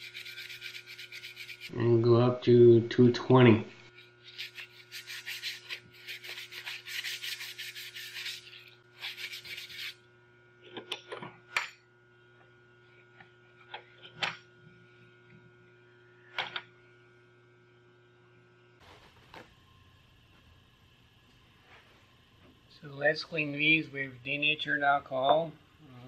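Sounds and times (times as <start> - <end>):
sandpaper rubbing on wood: 0.0 - 1.7, 4.2 - 10.0
faint steady hum: 0.0 - 26.0.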